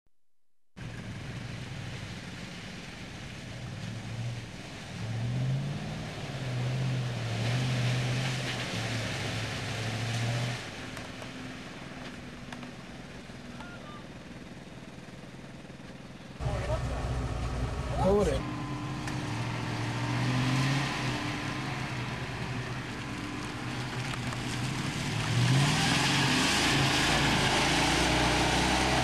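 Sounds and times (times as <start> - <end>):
engine revving hard in mud: 3.9 - 10.9, 16.4 - 29.0.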